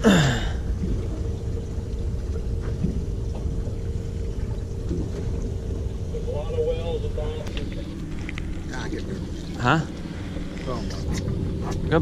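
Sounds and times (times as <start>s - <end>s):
boat engine idling: 0.0s - 12.0s
faint hum: 0.0s - 12.0s.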